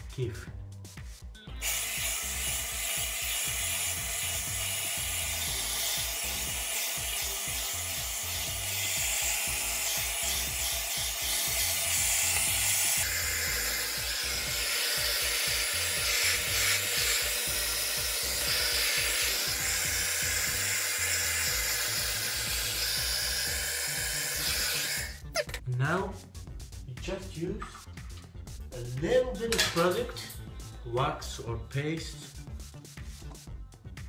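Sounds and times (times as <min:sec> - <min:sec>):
hair dryer blowing: 0:01.6 - 0:25.2.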